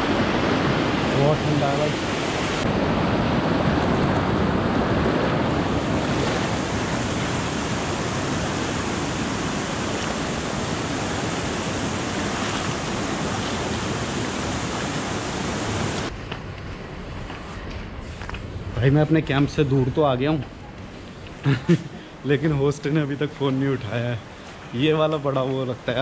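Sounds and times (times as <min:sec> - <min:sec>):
rushing stream water: 0:00.0 - 0:16.1, 0:22.2 - 0:26.0.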